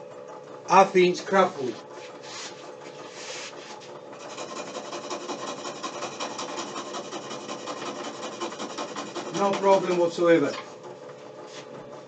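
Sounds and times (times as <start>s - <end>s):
scroll saw cutting wood: 3.2s - 10.6s.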